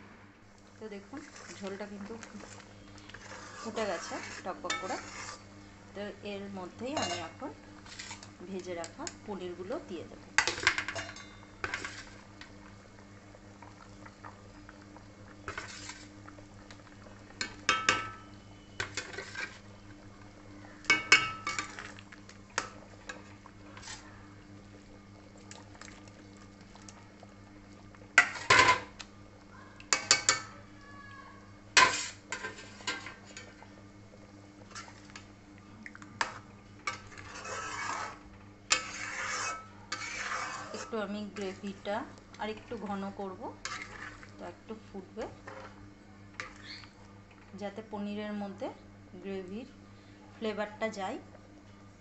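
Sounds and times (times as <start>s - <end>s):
metal spoon scraping a pan: 3.1s - 5.5s, 6.9s - 8.3s, 10.4s - 12.2s, 15.5s - 16.1s, 18.8s - 19.6s, 22.6s - 24.1s, 31.8s - 33.6s, 36.2s - 41.5s, 43.6s - 44.2s.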